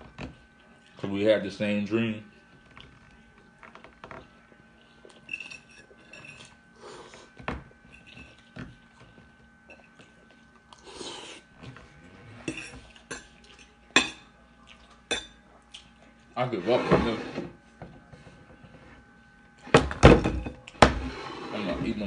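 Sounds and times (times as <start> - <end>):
fork clinking and scraping plate: 5.2 - 6.6, 12.4 - 14.3.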